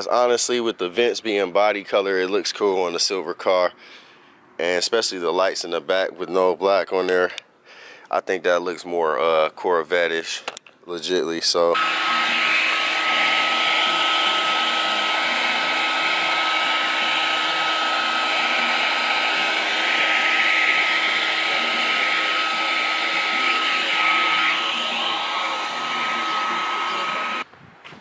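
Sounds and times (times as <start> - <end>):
heat gun blowing with whine: 11.8 - 27.5.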